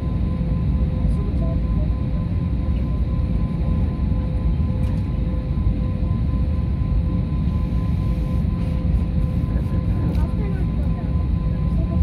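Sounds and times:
faint steady whine: 0:00.0 - 0:12.0
jet aircraft rumble: 0:00.0 - 0:12.0.

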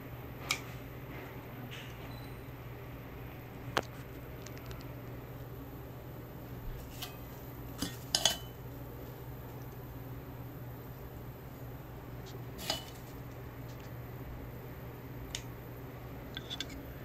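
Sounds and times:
steady low hum: 0:00.0 - 0:17.0
metal clinking on ceramic platter: 0:07.8 - 0:08.6.

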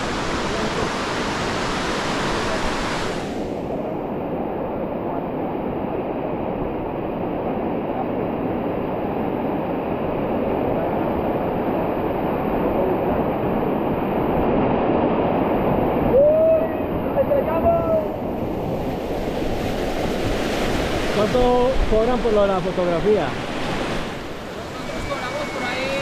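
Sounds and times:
river water rushing: 0:00.0 - 0:07.8, 0:09.0 - 0:26.0.

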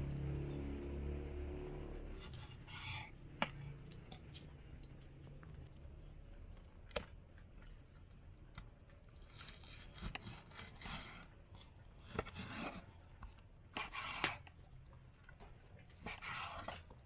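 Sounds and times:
knife slicing raw meat: 0:09.3 - 0:12.9.

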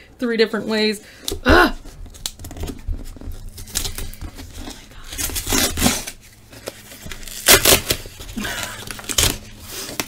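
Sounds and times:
cardboard box being torn: 0:02.1 - 0:10.0.

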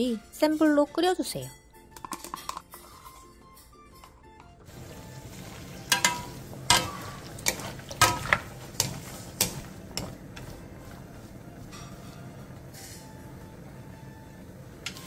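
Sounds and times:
food sizzling in a frying pan: 0:04.7 - 0:10.5
wooden spatulas clacking on pan: 0:05.9 - 0:10.5.

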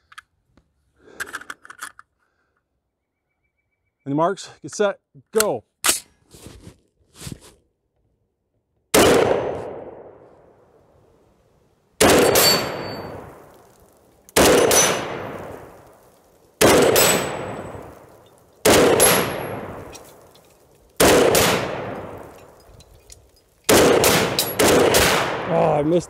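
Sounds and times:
rifle shots echoing: 0:08.9 - 0:10.2, 0:12.0 - 0:22.7, 0:23.6 - 0:26.0.

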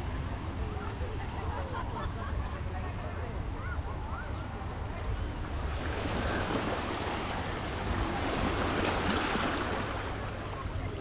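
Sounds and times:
waves breaking on beach: 0:05.5 - 0:11.0.

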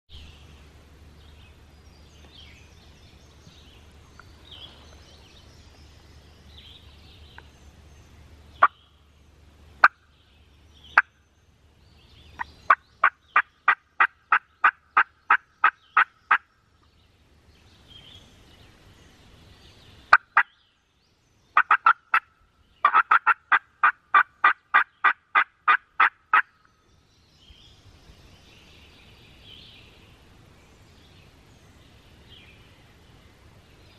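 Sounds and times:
faint songbirds chattering: 0:00.1 - 0:33.9
turkey clucks: 0:09.8 - 0:10.0, 0:12.4 - 0:16.5, 0:21.6 - 0:26.6
turkey yelping: 0:21.6 - 0:26.5.

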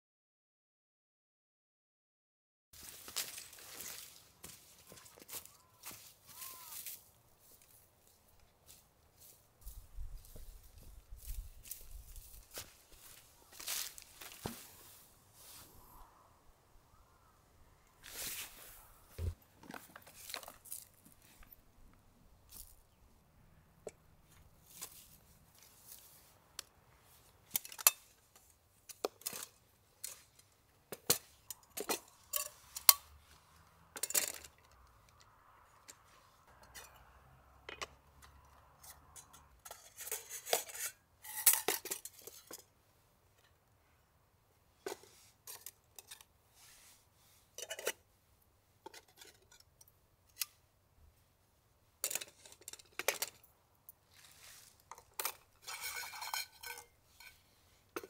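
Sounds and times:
metal cookware clinking: 0:55.2 - 0:57.4.

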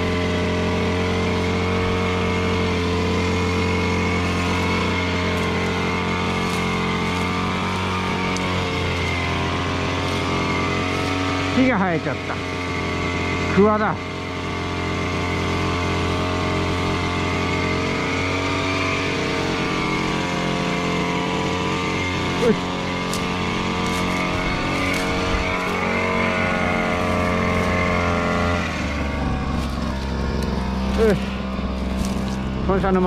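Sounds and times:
small petrol engine running: 0:00.0 - 0:33.0.

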